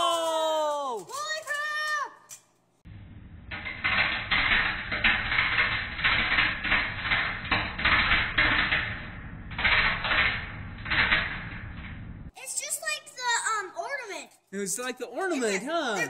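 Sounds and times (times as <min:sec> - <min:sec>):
crackling and buzzing of arcing: 0:02.9 - 0:12.3.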